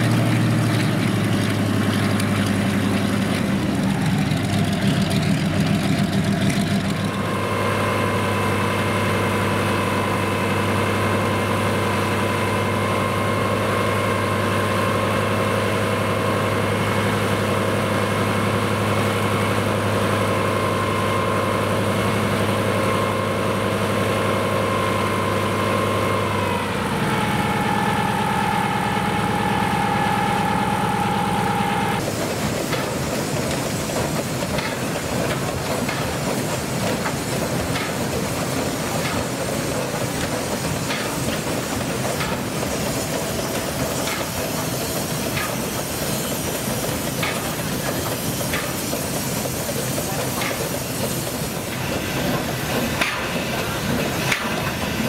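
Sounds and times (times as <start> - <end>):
old machinery humming: 0.0 - 55.0.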